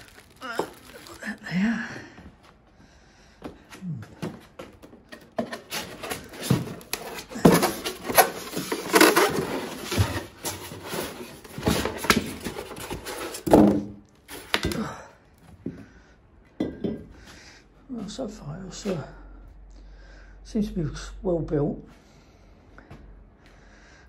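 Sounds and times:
polystyrene rubbing and scraping: 0.0s - 1.4s, 5.7s - 13.5s.

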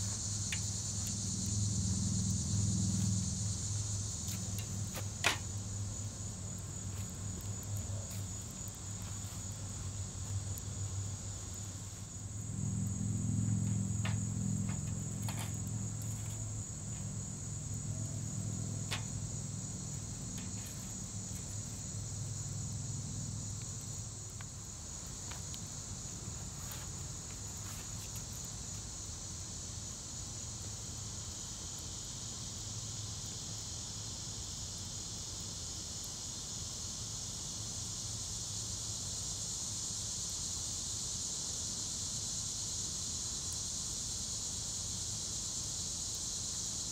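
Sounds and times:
insects chirping: 0.0s - 46.9s
low hum: 12.2s - 23.6s.

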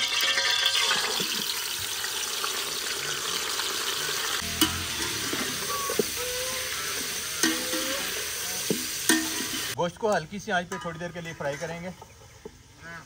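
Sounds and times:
meat sizzling in hot oil: 0.0s - 9.8s.

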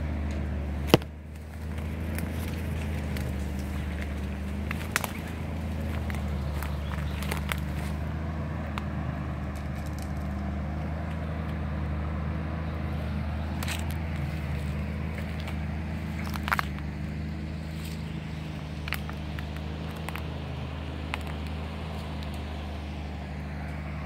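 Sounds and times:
low engine drone: 0.0s - 24.0s.

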